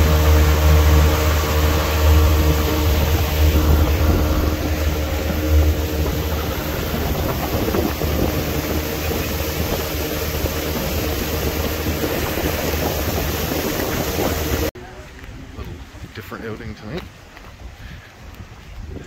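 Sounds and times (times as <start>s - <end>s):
engine idling: 0.0s - 14.7s.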